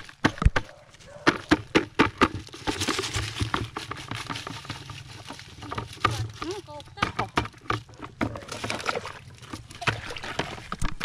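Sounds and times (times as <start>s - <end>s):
plastic bucket knocks and rustles: 0.0s - 11.0s
leaves sliding into water: 8.4s - 10.8s.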